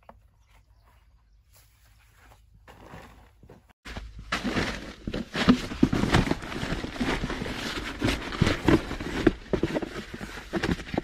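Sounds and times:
plastic and foam rustling: 3.9 - 11.0.

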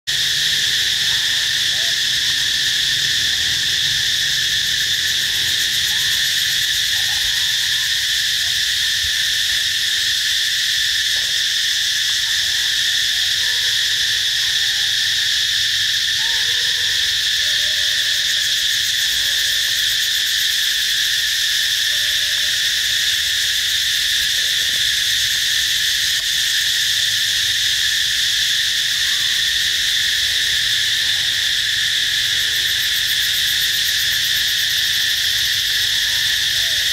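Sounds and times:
insect chorus drone: 0.1 - 36.9.

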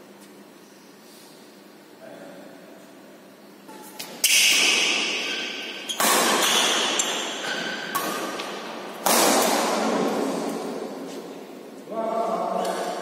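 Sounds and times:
racket hitting shuttlecock: 3.7 - 11.2.

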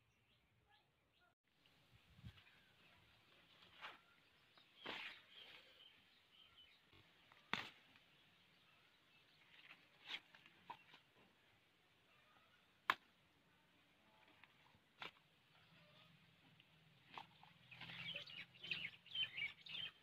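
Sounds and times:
leaves rustling: 9.4 - 11.2.

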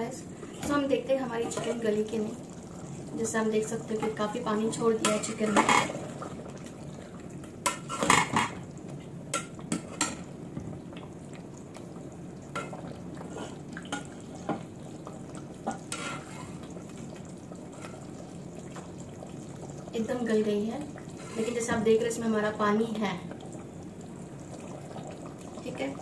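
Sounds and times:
spatula clinking and scraping a pot: 15.9 - 16.6.

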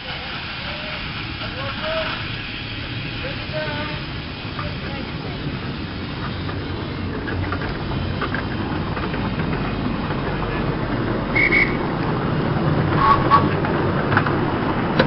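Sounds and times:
train wheels rumbling on track: 0.0 - 15.0
short double squeak: 13.0 - 13.5.

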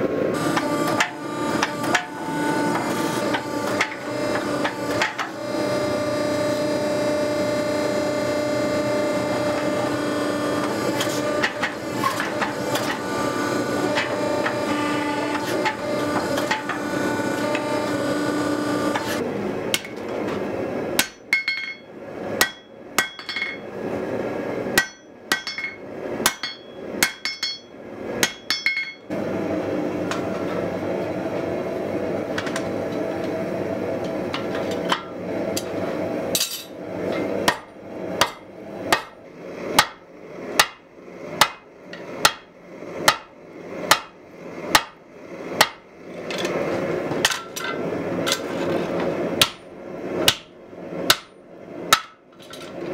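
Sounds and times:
machine hum: 0.0 - 52.9.

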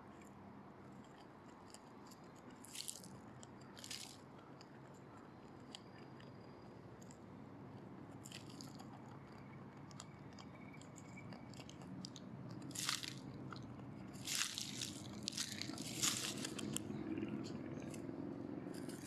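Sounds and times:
dry leaves rustling and crackling: 2.7 - 3.1, 3.8 - 4.2, 12.7 - 13.2, 14.2 - 16.9.

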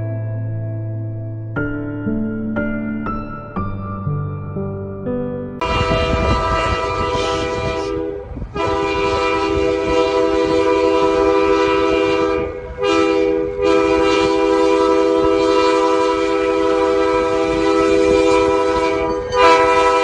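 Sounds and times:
locomotive air horn blasts: 5.6 - 20.0.

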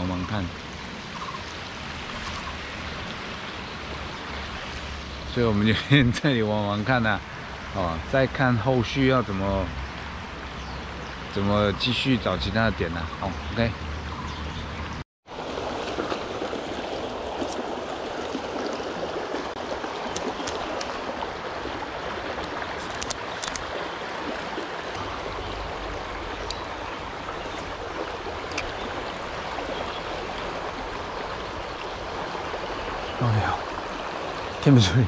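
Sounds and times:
small stream flowing: 0.0 - 35.0.

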